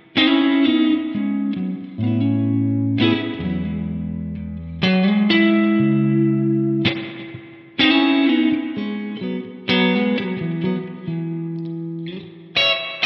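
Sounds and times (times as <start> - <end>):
electric guitar chords ringing: 0.0 - 13.0.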